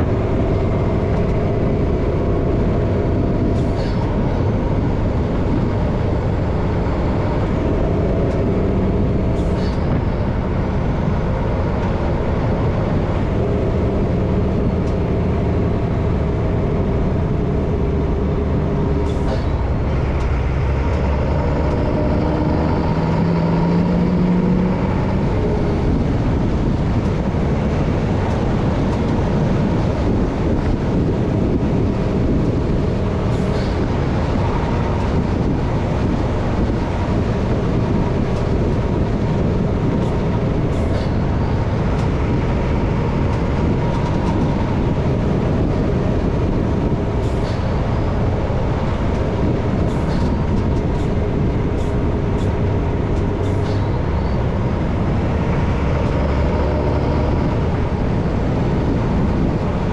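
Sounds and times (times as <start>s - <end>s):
road and drivetrain noise: 0.0s - 59.9s
truck diesel engine running: 0.0s - 59.9s.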